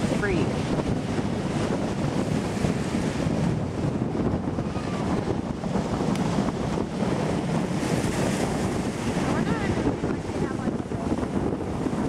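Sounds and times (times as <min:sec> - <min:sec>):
small waves breaking: 0:00.0 - 0:12.0
wind buffeting microphone: 0:00.0 - 0:12.0.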